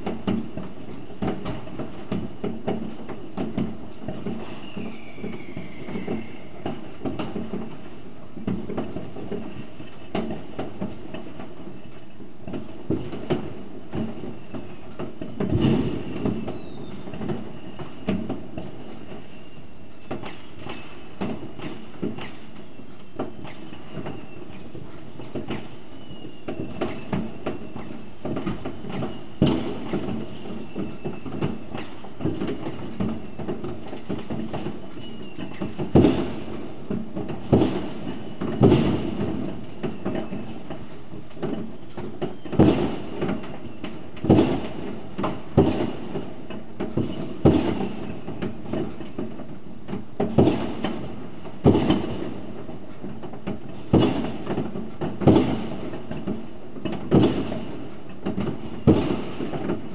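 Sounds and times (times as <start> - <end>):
distant fireworks bangs and crackling: 0.0 - 59.9
faint high whistle: 4.4 - 6.9, 15.6 - 18.3, 25.9 - 28.0
sharp loud firework bangs: 12.5 - 17.4, 26.5 - 40.8, 41.4 - 59.9.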